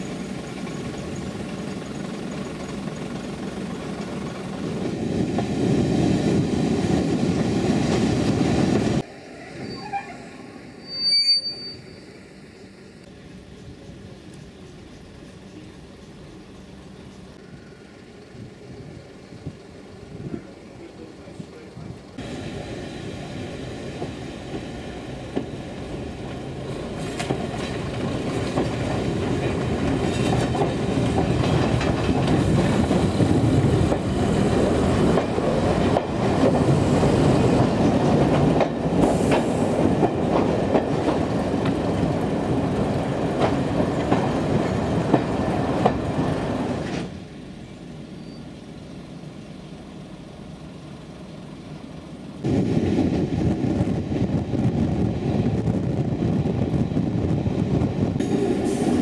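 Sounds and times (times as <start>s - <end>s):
steam train rumbling: 0.0s - 59.0s
wheels clacking over rail joints: 24.0s - 47.2s.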